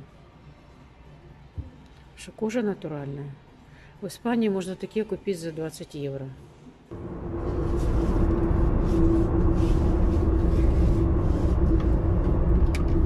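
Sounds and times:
engine and road rumble: 0:06.9 - 0:13.0
mid-pitched hum: 0:06.9 - 0:13.0.

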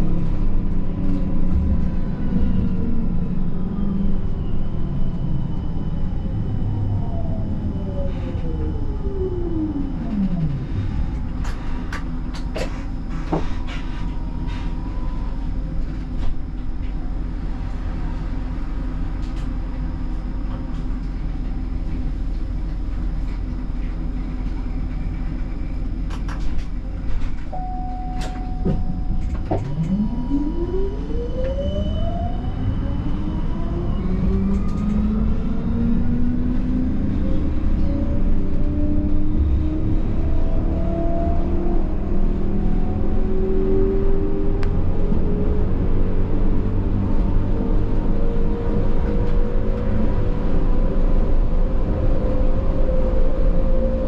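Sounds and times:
tram humming: 0:00.0 - 0:54.0
tram traction drive whine: 0:00.0 - 0:54.0
short beeps: 0:27.5 - 0:31.1.

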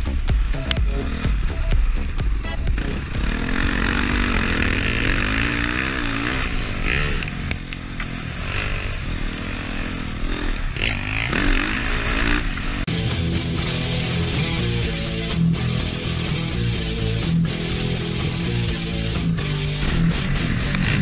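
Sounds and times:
dirt bike engine revving: 0:00.0 - 0:21.0
steady rush of noise: 0:00.0 - 0:21.0.

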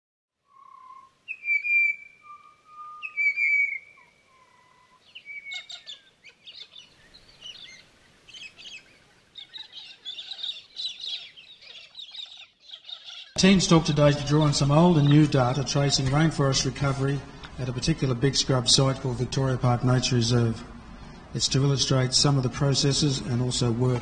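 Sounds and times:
bird whistling long notes: 0:00.4 - 0:13.4
birds chirping and twittering: 0:00.5 - 0:24.0.

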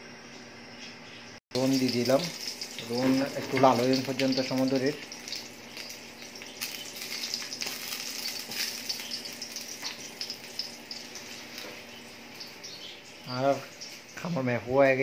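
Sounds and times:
onions sizzling in oil: 0:01.6 - 0:15.0.

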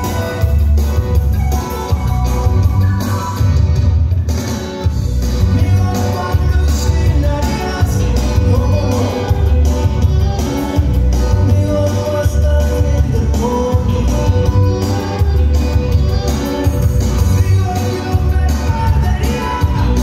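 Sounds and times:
loud dance music: 0:00.0 - 0:20.0.

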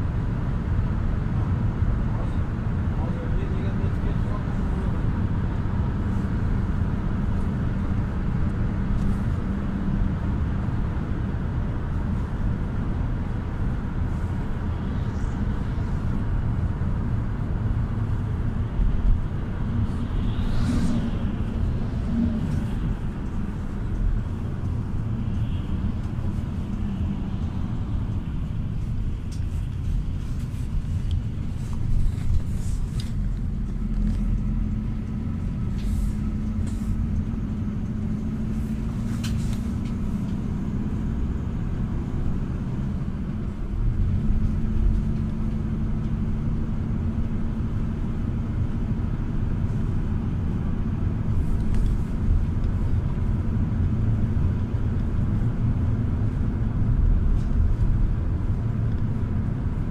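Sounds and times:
engine rumble: 0:00.0 - 0:59.9
tyre and road noise: 0:00.0 - 0:59.9
large vehicle passing: 0:13.7 - 0:46.7.

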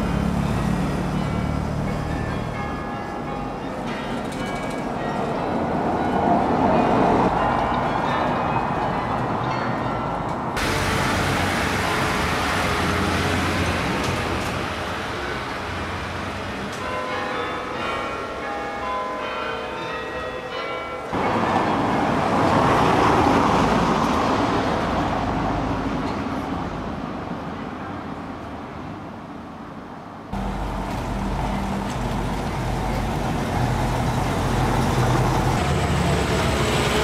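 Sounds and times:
street noise: 0:00.0 - 0:37.0
carillon bells ringing: 0:00.4 - 0:10.2, 0:16.8 - 0:22.1.

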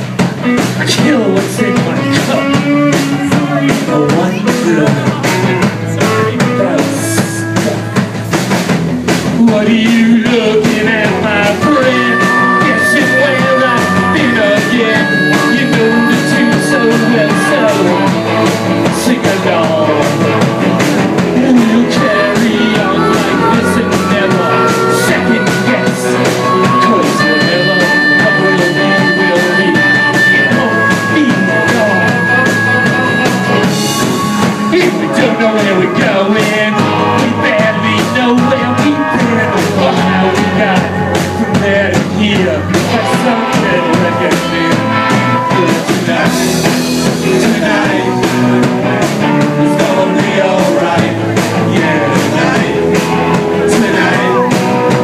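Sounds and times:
live rock band playing: 0:00.0 - 0:55.0
long held high notes: 0:10.2 - 0:41.6.

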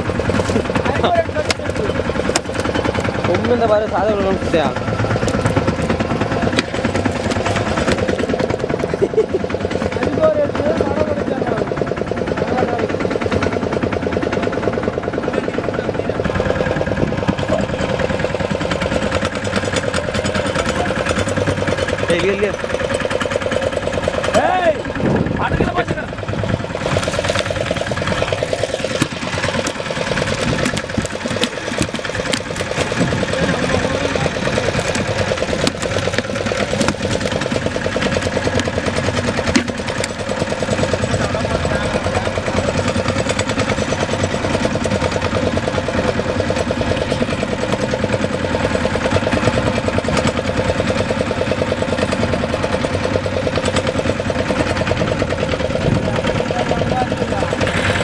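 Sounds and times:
boat engine running: 0:00.0 - 0:58.0
sharp knocks: 0:34.7 - 0:37.5.

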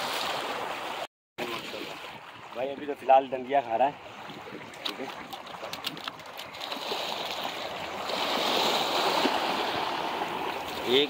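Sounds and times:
surf washing over rocks: 0:06.6 - 0:11.0.

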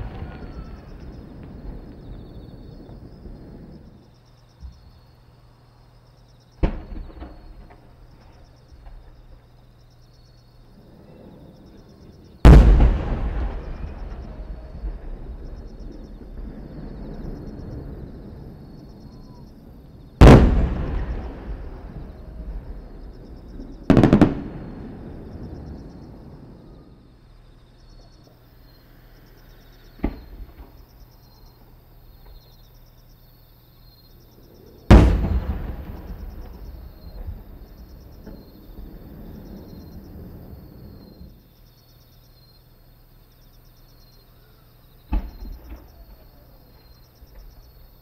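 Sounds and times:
faint firework crack: 0:00.0 - 0:04.8, 0:11.0 - 0:26.8, 0:29.9 - 0:31.0, 0:34.8 - 0:41.4, 0:45.1 - 0:47.6
firework booms with echo: 0:00.0 - 0:05.0, 0:06.6 - 0:09.3, 0:10.9 - 0:26.9, 0:30.0 - 0:30.8, 0:34.8 - 0:41.4, 0:45.1 - 0:46.6
crickets chirping: 0:00.0 - 0:48.0.

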